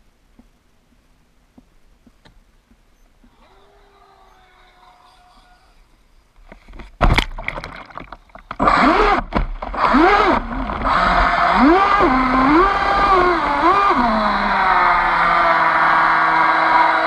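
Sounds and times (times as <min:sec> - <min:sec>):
churning water: 0:07.0 - 0:16.8
electric motor whining: 0:08.6 - 0:17.0.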